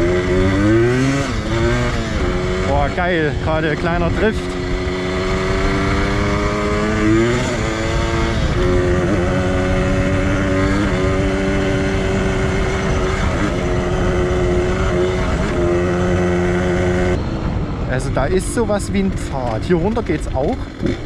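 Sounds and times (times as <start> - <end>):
two-stroke motorcycle engine: 0.0 - 21.0.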